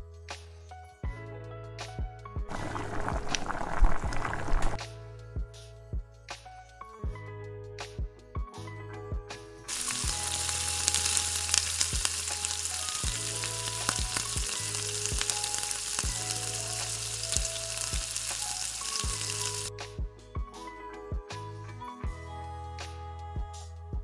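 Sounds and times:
soft background music: 0.0s - 24.0s
ghee sizzling in a pan: 9.7s - 19.7s.

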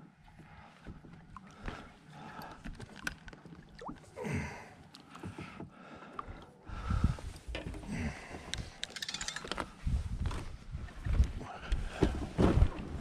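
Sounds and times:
knocks and clicks of fishing reels: 2.6s - 3.5s, 7.4s - 11.3s
wind buffeting microphone: 6.7s - 7.5s, 9.8s - 12.0s.

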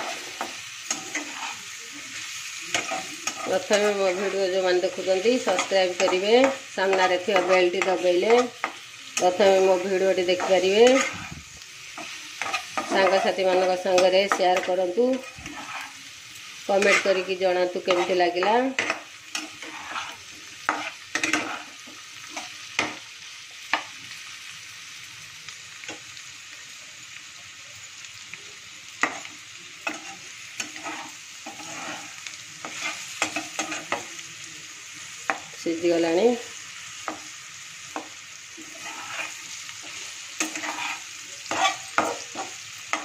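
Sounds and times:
spatula scraping and tapping pan: 0.0s - 16.0s, 16.7s - 23.0s, 29.0s - 34.1s, 37.0s - 37.3s, 37.9s - 43.0s
vegetables sizzling in hot oil: 0.0s - 43.0s.

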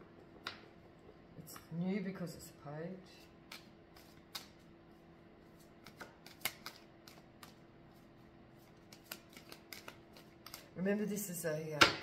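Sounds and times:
faint steady hum: 0.0s - 12.0s
cards clicking and snapping: 3.5s - 4.6s, 5.8s - 7.6s, 8.7s - 10.7s.

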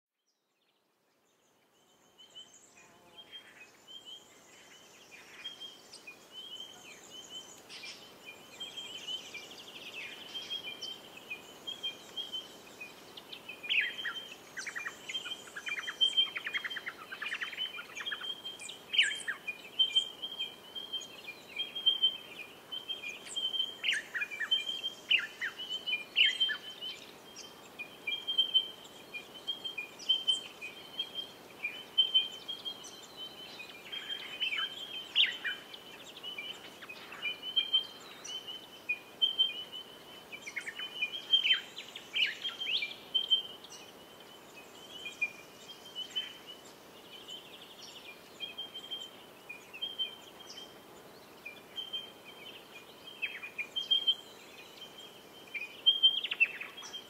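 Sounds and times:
birds calling and singing: 1.2s - 57.0s.

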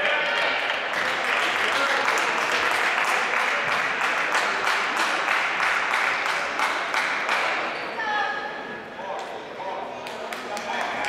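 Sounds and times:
hand claps: 0.3s - 7.6s, 10.0s - 11.0s.

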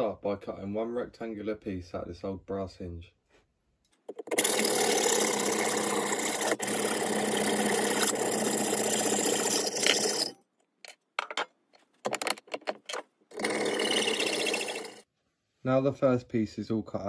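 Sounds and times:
hacksaw cutting metal: 4.1s - 10.4s, 13.3s - 15.0s.

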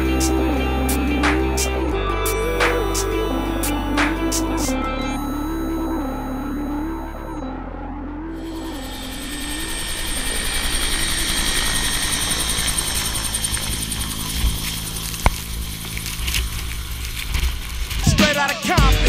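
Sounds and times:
music: 0.0s - 10.3s, 17.4s - 19.0s
helicopter turbine and rotor: 8.4s - 17.2s.

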